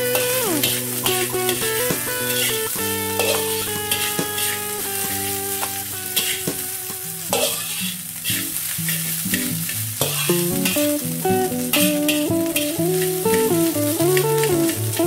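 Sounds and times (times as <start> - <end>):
metal spatula scraping wok: 0.0 - 6.6, 7.2 - 11.0
frying sizzle: 0.0 - 15.0.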